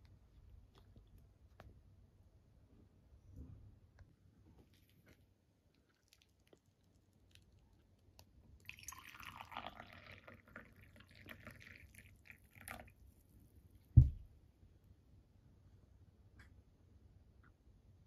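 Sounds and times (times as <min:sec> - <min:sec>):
water trickling and dripping: 0:08.6 - 0:13.0
low thump: 0:14.0 - 0:14.3.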